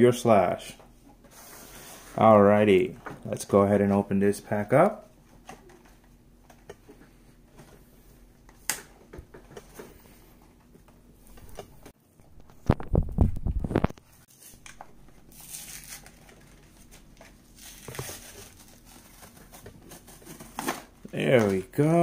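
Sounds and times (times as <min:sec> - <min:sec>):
packaging torn open and crinkled: 0:15.3 - 0:16.4.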